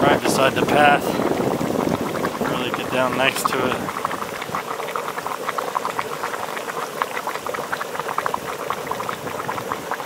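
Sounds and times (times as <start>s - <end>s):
mud pot bubbling and popping: 0.0s - 10.0s.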